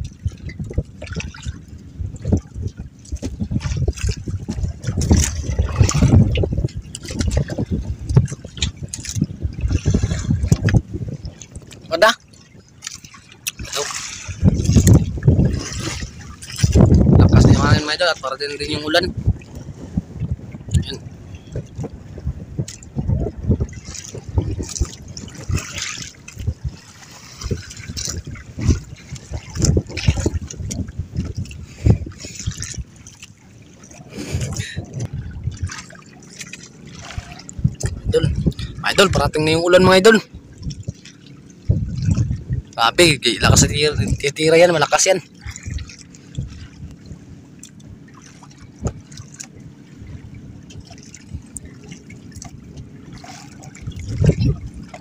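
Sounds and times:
small knocks and splashes: 0:00.0 - 0:01.6, 0:02.2 - 0:17.0, 0:22.6 - 0:23.0, 0:23.6 - 0:34.0, 0:34.6 - 0:38.8, 0:45.3 - 0:55.0
sea water slapping against boat hull: 0:00.0 - 0:55.0.

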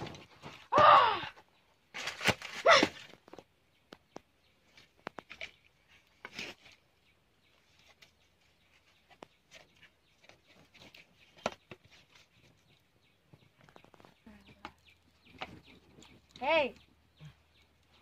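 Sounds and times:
fire popping and snapping: 0:12.5 - 0:18.0
wood fire crackling: 0:12.7 - 0:18.0.

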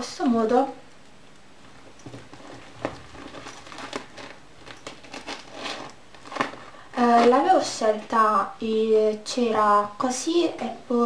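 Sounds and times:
handbag rustling: 0:02.0 - 0:08.2.

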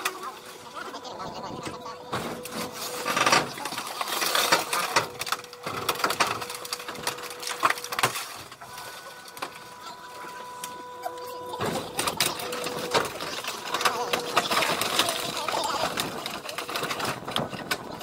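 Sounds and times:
steady machine tone: 0:00.0 - 0:16.1
car body cracking and creaking: 0:00.0 - 0:18.0.

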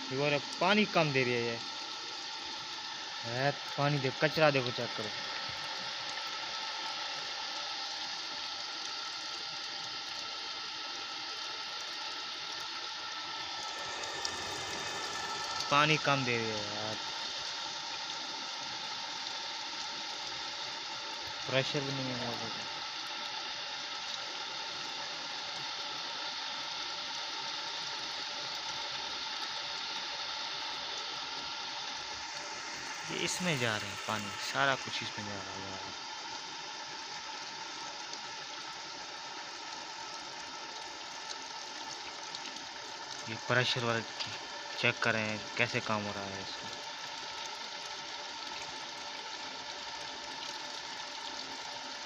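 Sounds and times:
electric water pump running: 0:00.0 - 0:52.0
water rushing: 0:02.8 - 0:07.0, 0:12.9 - 0:18.1, 0:31.7 - 0:38.9, 0:40.7 - 0:50.4.

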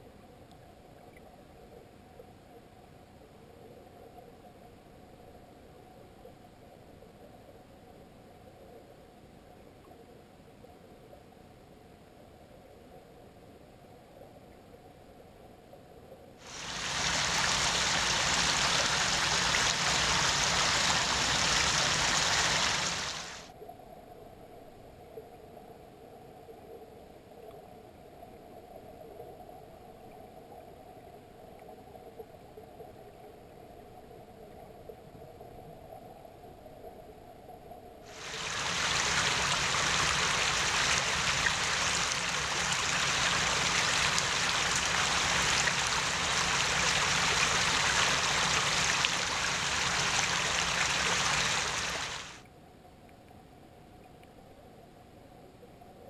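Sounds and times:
muffled underwater stream wash: 0:16.0 - 0:52.4
shallow stream water rushing: 0:16.5 - 0:23.5, 0:38.1 - 0:52.4.

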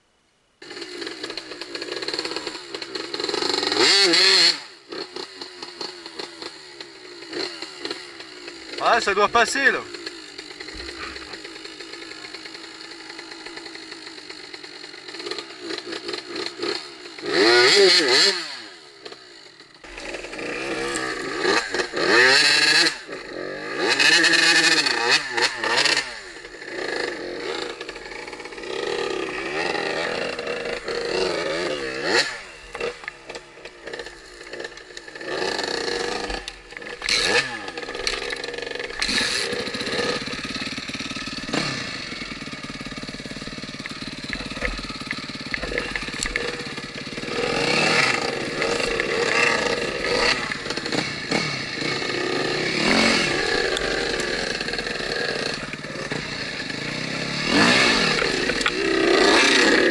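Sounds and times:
dirt bike engines revving: 0:00.6 - 0:59.9.

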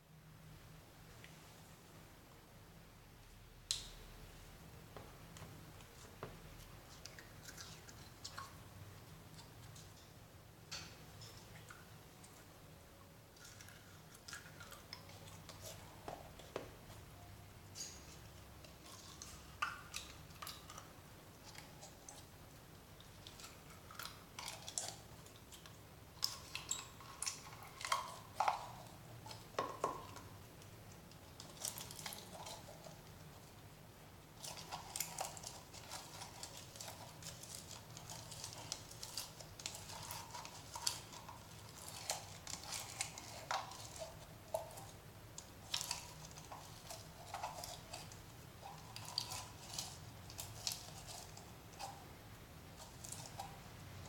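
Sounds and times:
slime squelching and crackling: 0:34.2 - 0:54.0.

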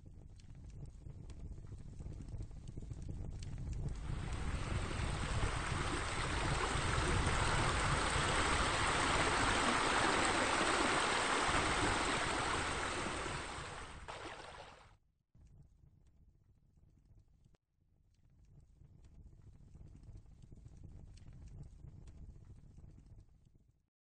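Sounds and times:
running water: 0:04.0 - 0:14.8.

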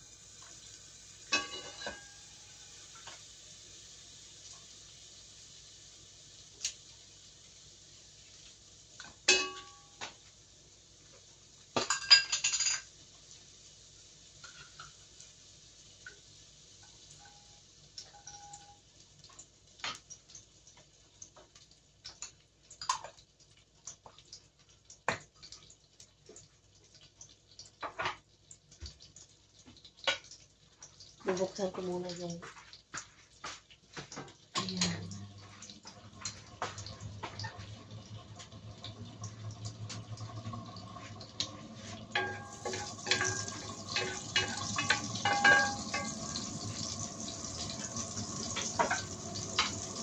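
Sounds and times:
dishes and utensils clinking: 0:01.3 - 0:02.3, 0:09.3 - 0:10.1, 0:11.8 - 0:12.9, 0:41.8 - 0:47.0, 0:47.6 - 0:50.0.

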